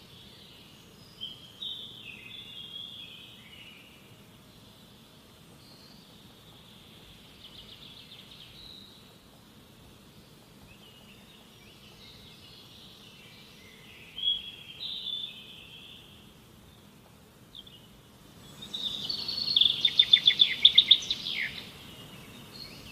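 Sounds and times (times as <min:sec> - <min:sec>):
faint low background noise: 0:00.0 - 0:22.9
birds chirping and calling: 0:17.5 - 0:22.9.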